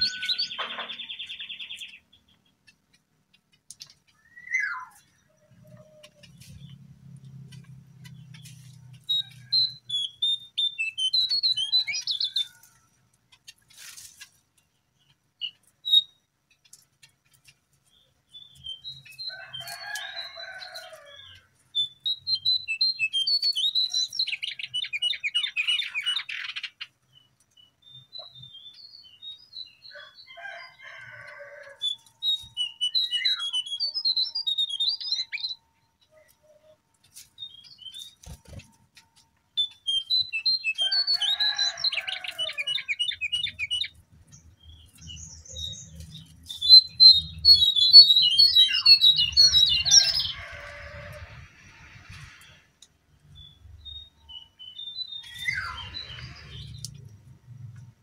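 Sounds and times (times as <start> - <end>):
bird chirping and trilling: 0.0 - 2.7, 4.1 - 6.8, 9.1 - 12.7, 18.3 - 30.8, 31.8 - 36.8, 39.6 - 50.9, 53.3 - 56.8.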